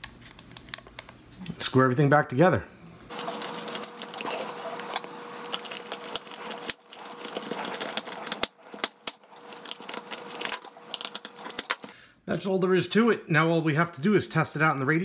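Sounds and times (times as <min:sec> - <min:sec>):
screwdriver scraping and turning: 0:03.1 - 0:12.0.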